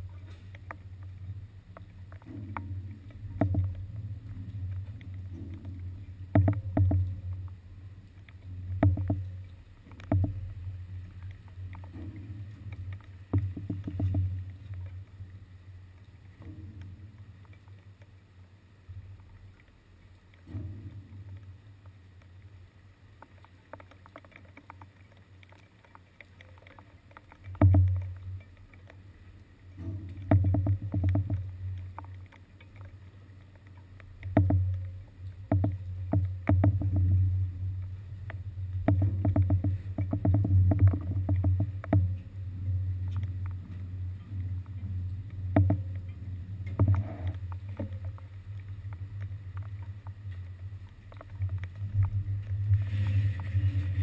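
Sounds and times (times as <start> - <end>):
floating landing knocking and thudding: 8.8 - 9.3, 13.3 - 14.4, 27.6 - 28.1, 29.9 - 31.5, 34.3 - 34.8, 35.4 - 37.4, 38.8 - 42.2, 45.5 - 46.0.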